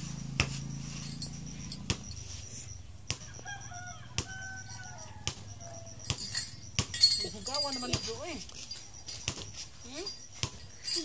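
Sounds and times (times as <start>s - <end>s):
wavering animal calls: 0.2s - 6.8s.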